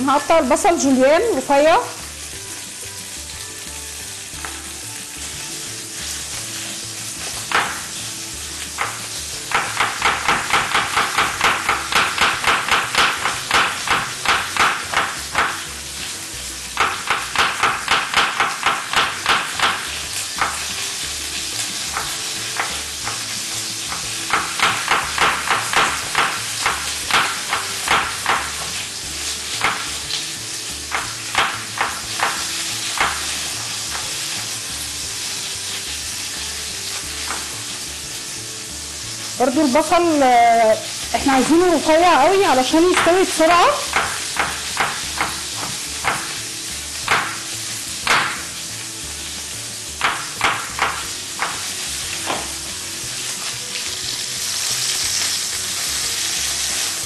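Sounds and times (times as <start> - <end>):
meat sizzling in hot oil: 0.0 - 57.0
knife slicing onion on wooden board: 8.7 - 15.6, 16.8 - 20.7, 21.8 - 28.7, 43.9 - 46.4, 47.0 - 48.5.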